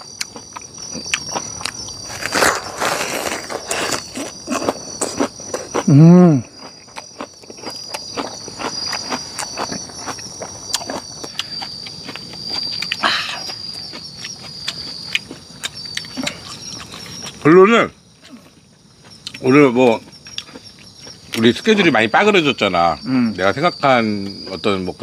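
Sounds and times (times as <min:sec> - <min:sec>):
night insects trilling: 0:00.0 - 0:25.0
man groaning: 0:05.9 - 0:06.5.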